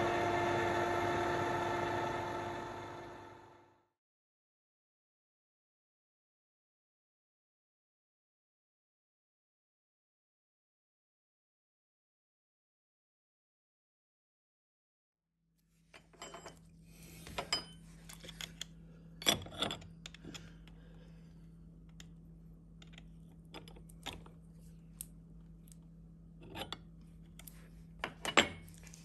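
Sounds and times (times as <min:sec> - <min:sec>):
steady low hum: 0:16.0 - 0:29.0
metal parts clinking: 0:17.4 - 0:20.7.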